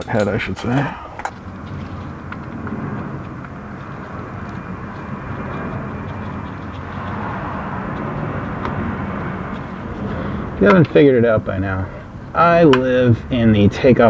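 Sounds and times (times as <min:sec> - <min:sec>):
airplane rumble overhead: 0:00.0 - 0:14.0.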